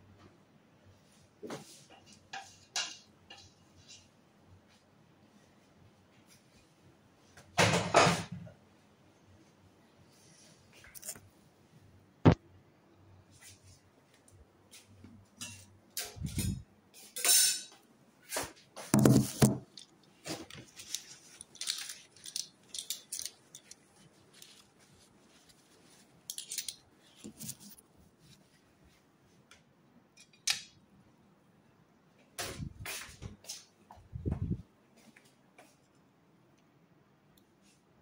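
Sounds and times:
dishes and utensils clinking: 0:02.0 - 0:04.1, 0:15.4 - 0:17.8, 0:26.3 - 0:27.7.

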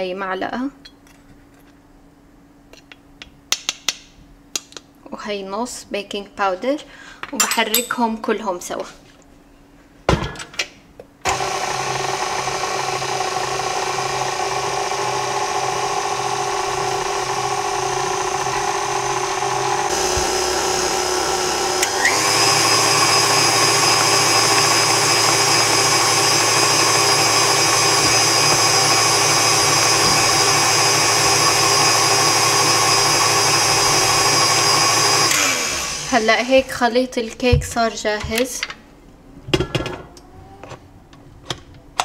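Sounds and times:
stand mixer motor running: 0:11.3 - 0:36.2.

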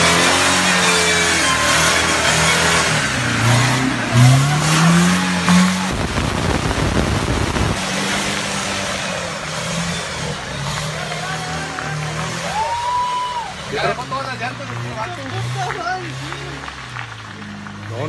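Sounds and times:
engine revving hard: 0:00.0 - 0:12.8
mud tyres spinning: 0:00.0 - 0:18.0.

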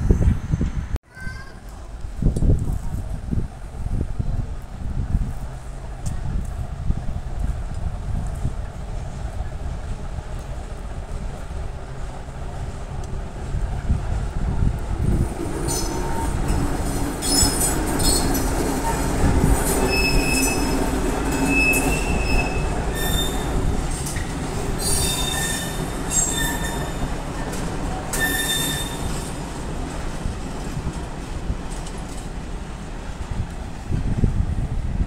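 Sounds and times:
freight train rumbling past: 0:01.7 - 0:35.0
wheels squealing on rails: 0:15.0 - 0:31.0.

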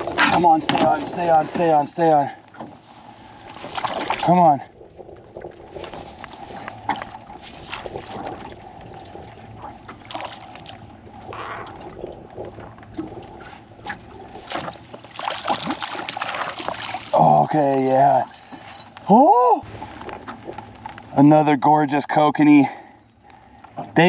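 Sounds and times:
faint steady hum: 0:00.0 - 0:24.0
water sloshing around boat: 0:00.0 - 0:24.0
fish splashing at surface: 0:14.3 - 0:17.3
fishing gear knocks and clicks: 0:17.9 - 0:19.1.

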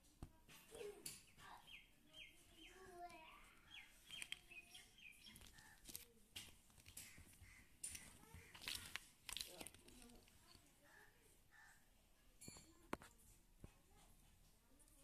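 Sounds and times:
small bird chirping: 0:01.1 - 0:06.2
plastic toys clicking: 0:03.8 - 0:10.7.

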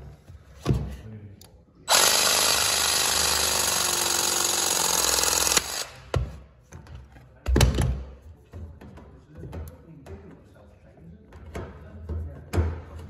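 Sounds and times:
hydraulic press tool whirring: 0:01.9 - 0:06.1.

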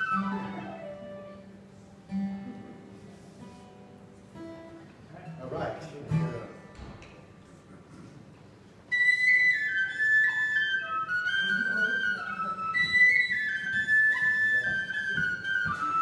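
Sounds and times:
flute melody: 0:00.0 - 0:02.1, 0:08.9 - 0:16.0.

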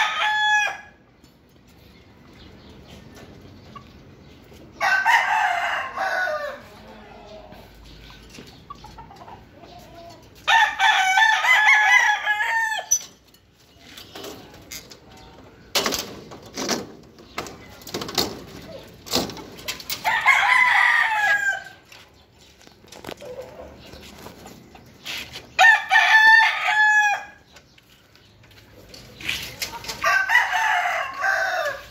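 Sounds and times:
rooster crowing: 0:04.8 - 0:06.7, 0:30.0 - 0:31.9.

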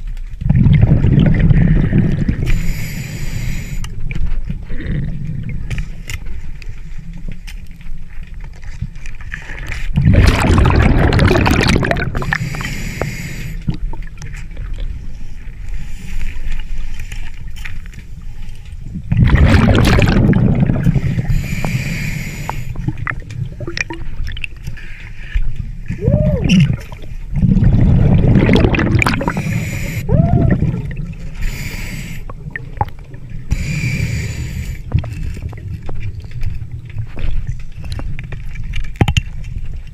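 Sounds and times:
low rumble of water: 0:00.0 - 0:39.9
exhaled bubbles rushing: 0:00.4 - 0:02.7, 0:09.9 - 0:12.8, 0:19.0 - 0:21.6, 0:22.6 - 0:24.6, 0:25.9 - 0:36.9.

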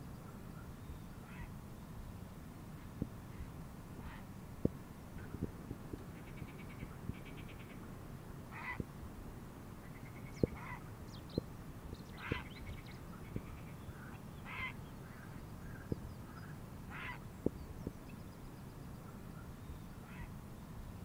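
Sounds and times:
waterbirds harsh calls: 0:08.5 - 0:08.8, 0:09.9 - 0:10.9, 0:12.1 - 0:17.3, 0:20.0 - 0:20.4
small birds chirping: 0:09.8 - 0:21.0.

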